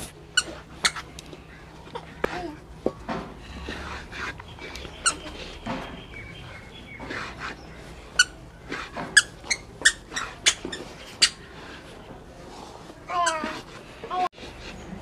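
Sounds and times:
wooden spatula scraping a pan: 0:03.1 - 0:15.0
high-pitched squeaks: 0:04.6 - 0:07.4, 0:08.1 - 0:11.4.

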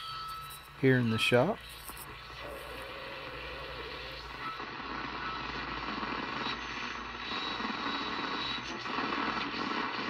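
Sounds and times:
faint high whistle: 0:00.0 - 0:01.6
radio static and hiss: 0:00.1 - 0:10.0.

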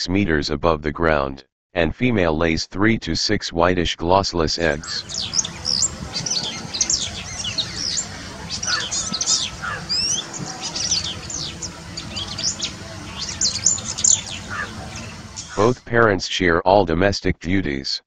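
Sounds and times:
small birds chirping: 0:04.8 - 0:15.8
low background hum: 0:04.8 - 0:15.9.

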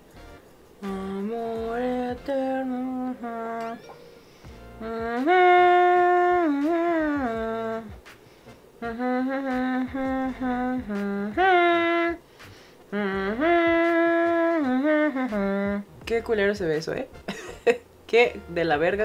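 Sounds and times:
woman humming: 0:00.8 - 0:08.0, 0:08.8 - 0:12.2, 0:12.9 - 0:16.0.

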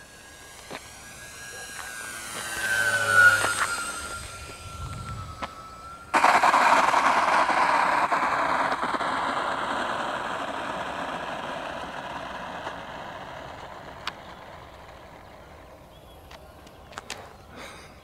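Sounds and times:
model plane propellers whirring: 0:00.0 - 0:18.0.

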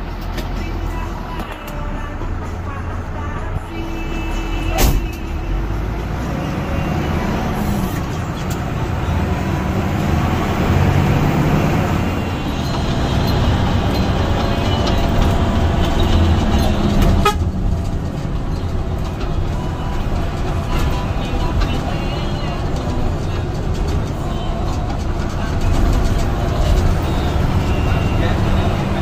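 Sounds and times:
bus engine and road noise: 0:00.0 - 0:29.0
horn toots: 0:15.8 - 0:17.6.

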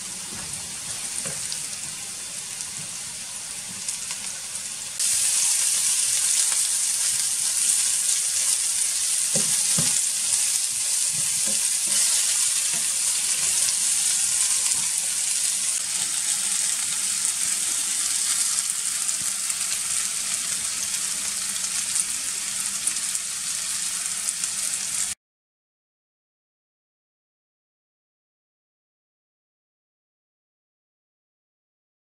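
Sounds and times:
potatoes sizzling in a frying pan: 0:00.0 - 0:25.2
utensil stirring knocks: 0:09.3 - 0:10.2, 0:11.0 - 0:15.2.

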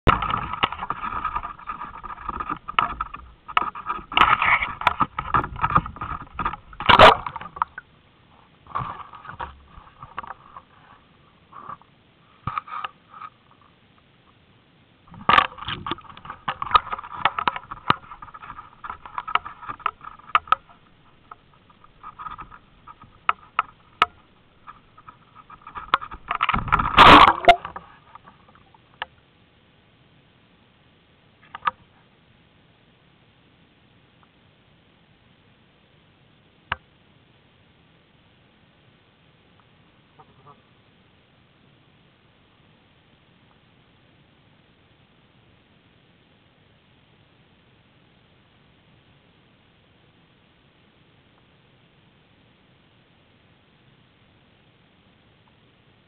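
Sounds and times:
underwater camera handling noise: 0:00.1 - 0:07.8, 0:15.1 - 0:28.6.

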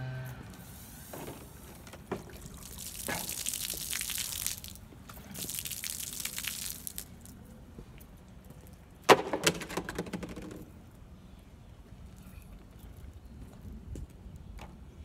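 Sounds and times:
liquid splashing onto pavement: 0:02.2 - 0:07.5.

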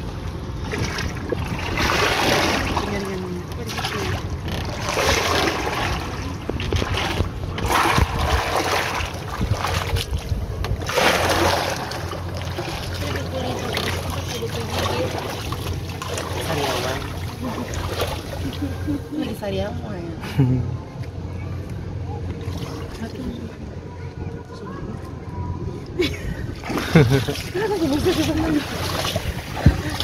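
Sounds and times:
water splashing against boat: 0:00.0 - 0:19.3, 0:26.1 - 0:30.0
low steady hum: 0:00.0 - 0:30.0.

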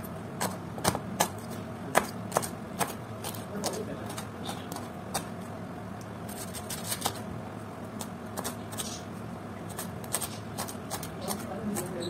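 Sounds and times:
knife slicing cabbage on board: 0:00.4 - 0:05.3, 0:09.7 - 0:12.0.

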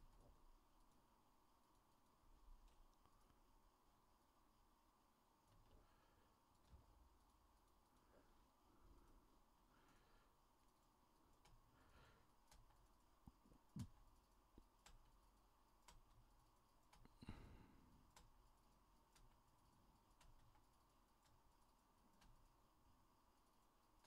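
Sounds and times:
keyboard and mouse clicks: 0:12.4 - 0:17.2.

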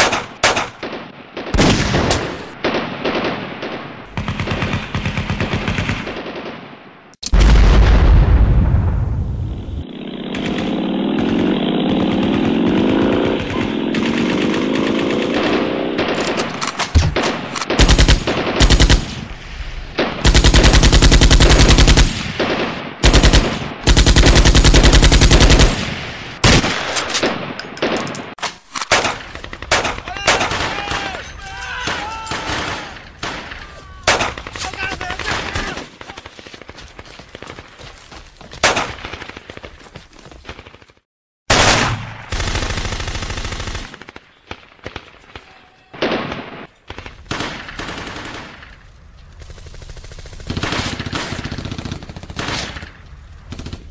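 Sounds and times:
single gunshots: 0:00.0 - 0:04.9, 0:28.8 - 0:31.2, 0:31.9 - 0:36.4, 0:38.6 - 0:39.4, 0:41.5 - 0:42.3, 0:43.9 - 0:48.8
motorcycle engine running: 0:09.8 - 0:15.9
machine gun bursts: 0:23.0 - 0:25.8
people shouting: 0:30.0 - 0:36.3, 0:45.3 - 0:46.0.

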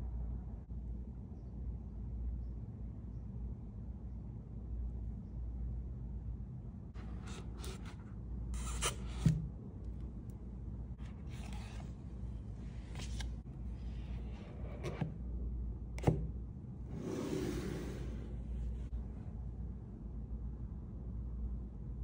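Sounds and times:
cardboard sliding and rustling: 0:11.1 - 0:12.0, 0:12.8 - 0:15.2, 0:16.9 - 0:18.8.

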